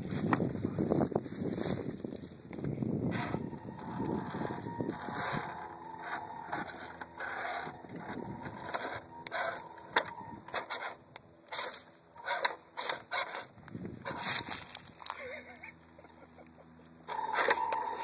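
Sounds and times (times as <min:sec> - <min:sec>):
electric motor and gears whining: 0:00.0 - 0:18.0
tyres scraping on rock: 0:03.1 - 0:15.2.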